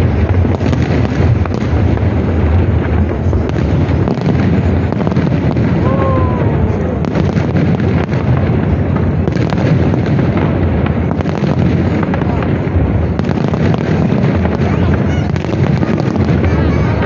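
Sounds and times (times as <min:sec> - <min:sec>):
fireworks bursting: 0:00.0 - 0:17.0.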